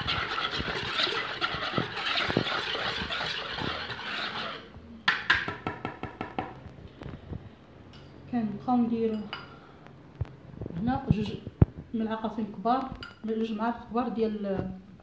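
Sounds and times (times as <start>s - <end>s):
whisk clinking against bowl: 0.0s - 4.6s
whisk beating batter: 0.0s - 4.7s.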